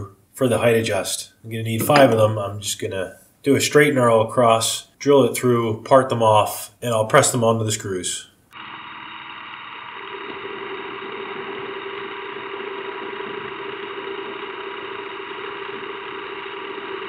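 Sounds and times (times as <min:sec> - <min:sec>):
steady hum: 0:00.0 - 0:17.0
metal lathe running: 0:08.6 - 0:17.0.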